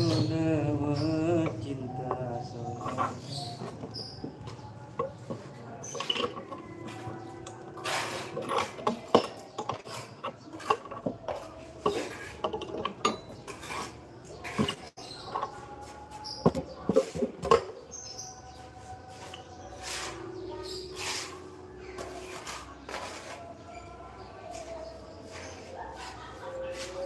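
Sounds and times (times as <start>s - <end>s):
hand tools clinking and scraping: 0.0s - 27.0s.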